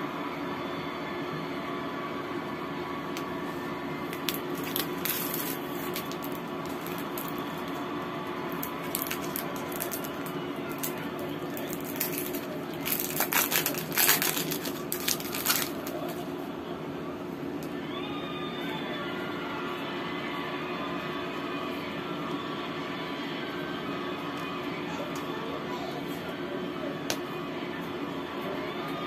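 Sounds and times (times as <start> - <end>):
steady background hum: 0.0 - 29.0
paper crinkling and rustling: 4.1 - 7.9, 8.5 - 16.2.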